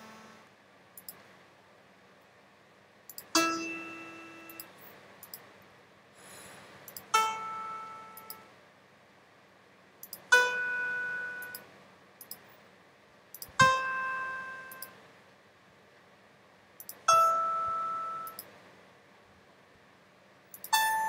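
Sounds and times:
synthesized piano notes: 3.4 - 4.6, 13.6 - 14.8, 17.1 - 18.4
short mouse clicks: 10.0 - 10.3.

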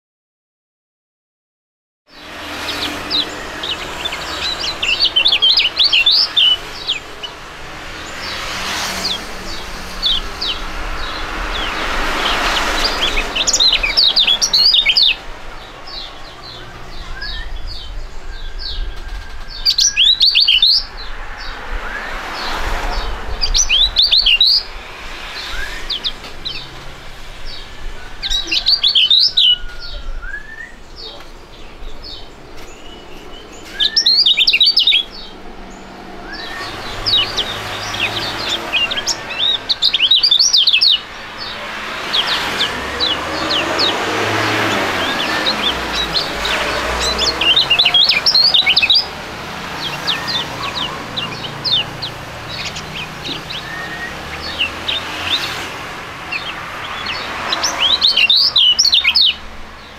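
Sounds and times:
birds twittering song: 2.1 - 59.9
thin whistled bird notes: 28.3 - 31.3, 32.7 - 35.2, 52.6 - 55.4.

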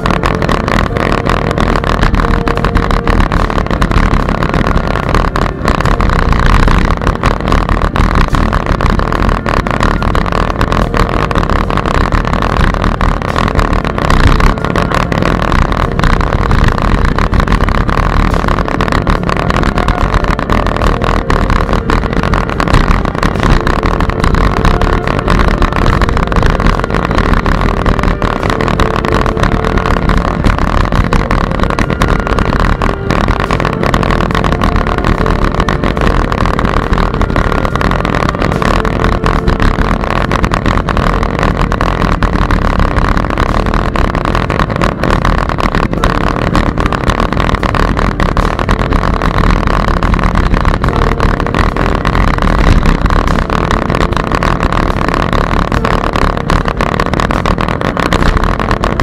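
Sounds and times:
bicycle road rumble: 0.0 - 59.0
constant hiss: 0.0 - 59.0
wind: 0.0 - 59.0
wind buffeting microphone: 0.0 - 59.0.

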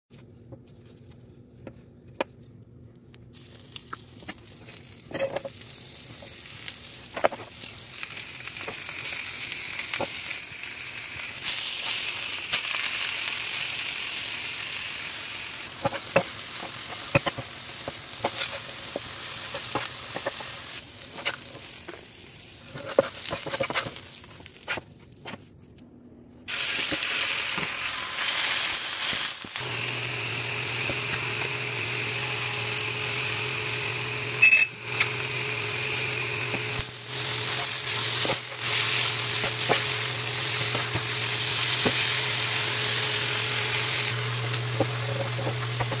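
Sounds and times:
vegetables sizzling on griddle: 5.5 - 24.6, 26.5 - 46.0
spatula clicking and scraping: 15.8 - 21.5, 22.7 - 24.8, 44.7 - 46.0.

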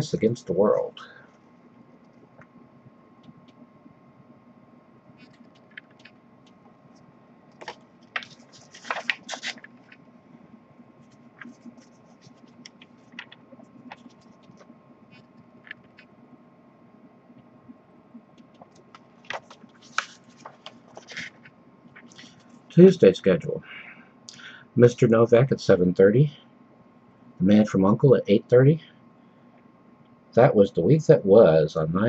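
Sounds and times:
paper pages rustling: 7.6 - 10.0, 11.0 - 14.7, 18.6 - 22.6.

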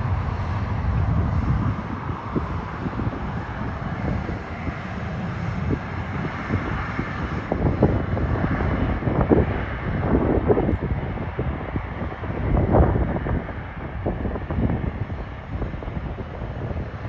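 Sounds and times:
airliner engines running: 0.0 - 17.0
wind buffeting microphone: 0.0 - 17.0.

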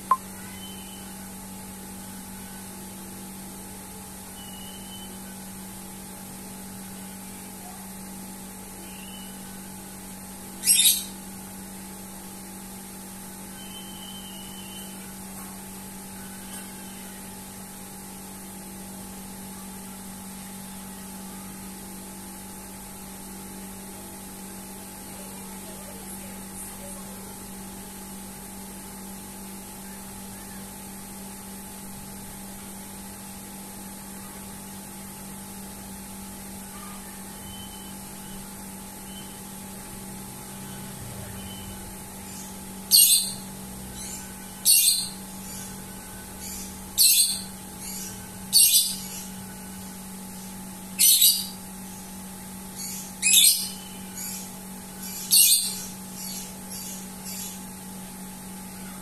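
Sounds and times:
faint bird chirps: 0.0 - 1.3, 4.3 - 5.4, 8.8 - 9.7, 10.6 - 11.2, 13.5 - 17.4, 36.6 - 39.5, 40.5 - 57.8
low electrical hum: 0.0 - 59.0.

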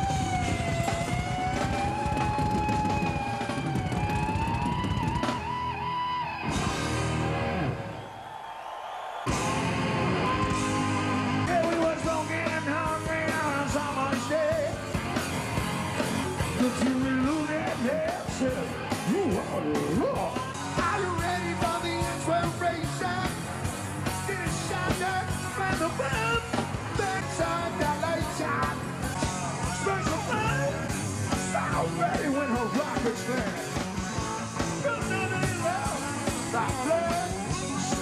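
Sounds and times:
live rock band playing: 0.0 - 7.9, 9.3 - 38.0
electric guitar: 0.0 - 8.0, 9.3 - 38.0
man singing and shouting: 11.4 - 14.9, 16.4 - 23.5, 24.1 - 33.8, 34.6 - 38.0.

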